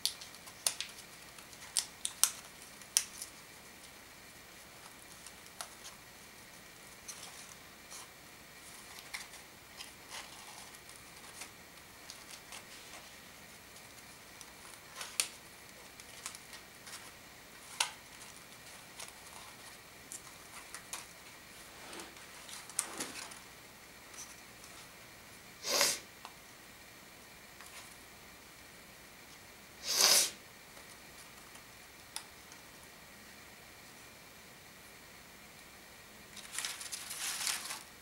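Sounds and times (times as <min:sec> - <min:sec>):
sharp paper clicks: 0:00.0 - 0:04.0, 0:13.7 - 0:21.2
paper rustling and crinkling: 0:00.0 - 0:23.5, 0:36.3 - 0:38.0.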